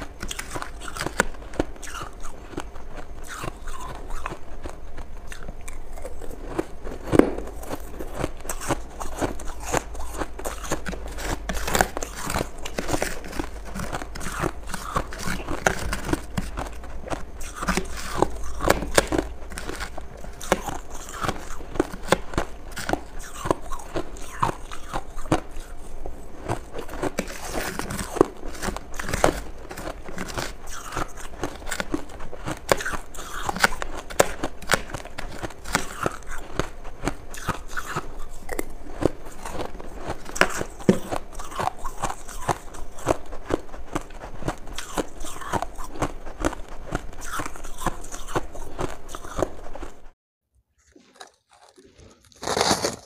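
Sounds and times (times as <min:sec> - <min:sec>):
chewing frost: 0:00.0 - 0:50.2, 0:50.8 - 0:53.0.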